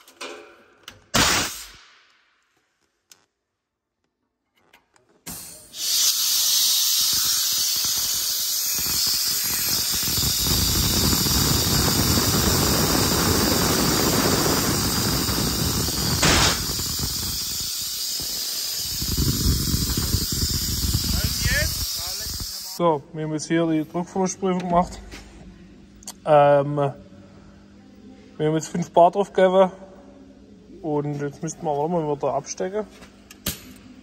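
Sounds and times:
compressed air hissing: 5.3s - 22.8s.

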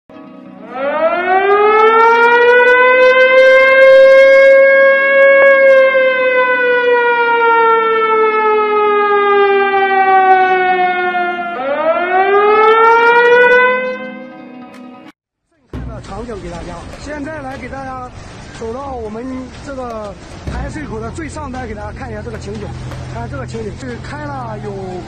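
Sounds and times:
warning siren wailing: 0.5s - 14.7s.

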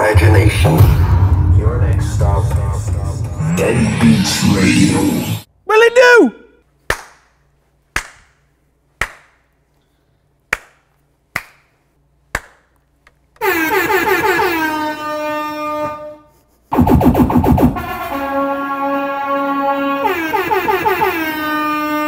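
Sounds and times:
hand claps: 6.9s - 9.5s, 10.5s - 12.9s
air horn sound effect: 13.4s - 22.0s.

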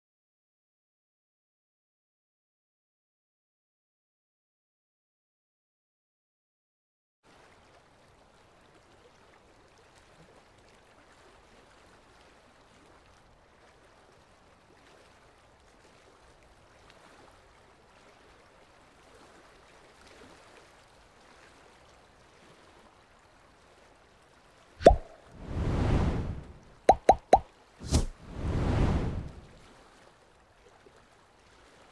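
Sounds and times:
faint stream running water: 7.2s - 31.9s.

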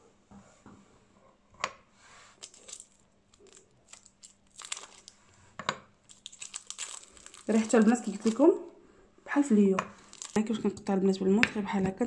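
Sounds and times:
pieces crunching and crackling: 2.4s - 5.2s, 6.0s - 8.6s, 9.9s - 10.6s.

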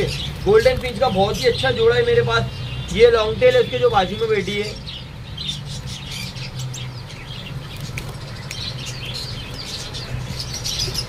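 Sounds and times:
birds fluttering in cage: 0.0s - 11.0s
small birds chirping: 0.0s - 11.0s.

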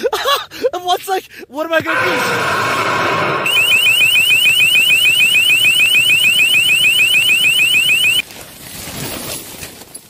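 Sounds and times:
electronic alarm chirps: 3.4s - 8.2s.

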